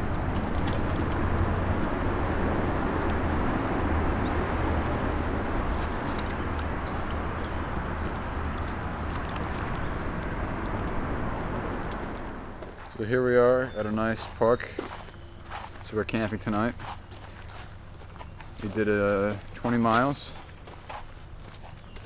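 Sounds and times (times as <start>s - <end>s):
wind rumbling on microphone: 0.0s - 12.6s.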